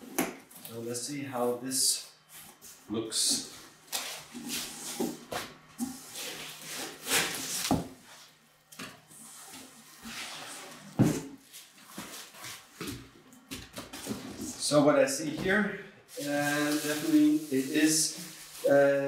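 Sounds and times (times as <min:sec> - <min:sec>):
plastic and cardboard rustling: 0:15.4 - 0:19.0.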